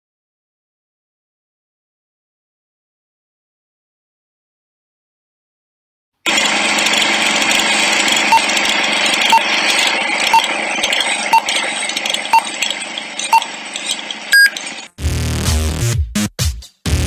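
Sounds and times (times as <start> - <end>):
high-pitched beep: 7.9 - 14.9
short beeps: 8.1 - 8.6, 9.2 - 14.8.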